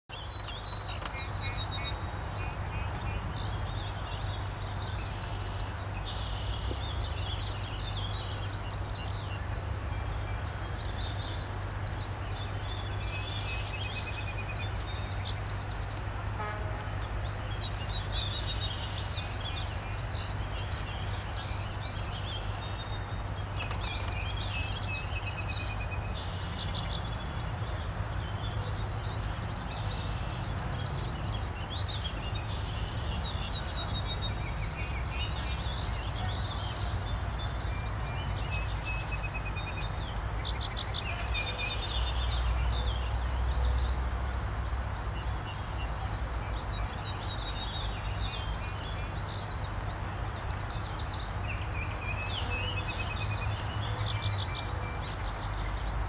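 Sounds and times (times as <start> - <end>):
songbirds trilling: 0.0 - 56.0.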